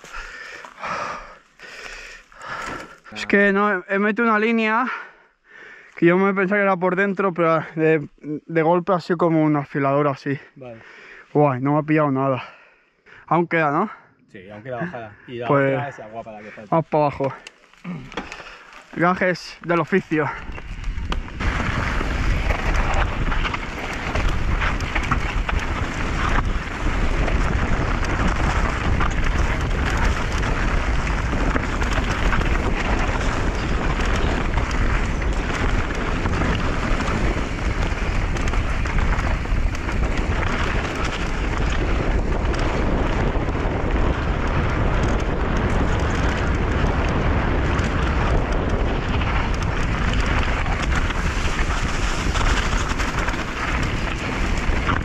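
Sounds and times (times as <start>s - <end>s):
bike rattling: 0.0s - 3.4s, 15.5s - 55.0s
tyres crackling on rock: 0.0s - 3.7s, 14.7s - 55.0s
wind rush on microphone: 17.9s - 55.0s.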